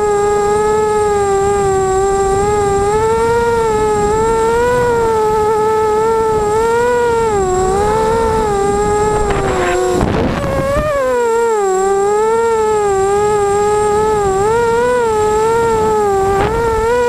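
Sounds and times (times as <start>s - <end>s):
quadcopter motors whining: 0.0s - 17.0s.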